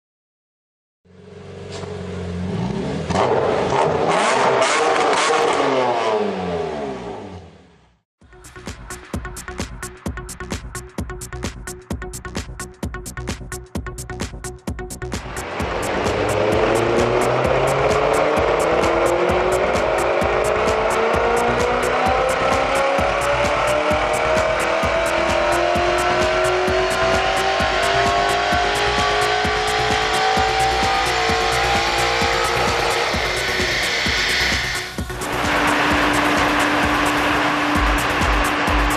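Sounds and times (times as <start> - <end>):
car engine revving hard: 2.4 - 7.6, 15.2 - 38.9
music with quick beat: 8.3 - 38.9.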